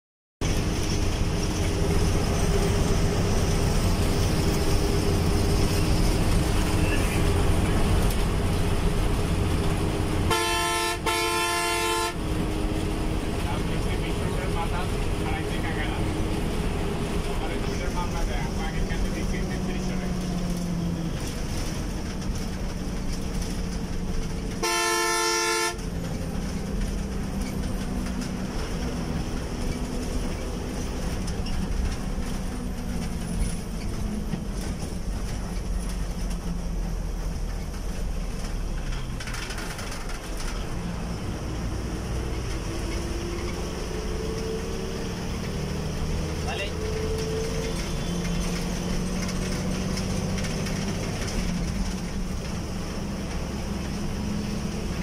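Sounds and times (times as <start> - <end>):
bus engine and road noise: 0.4 - 55.0
multi-tone horn blast: 10.3 - 12.3, 24.6 - 25.9.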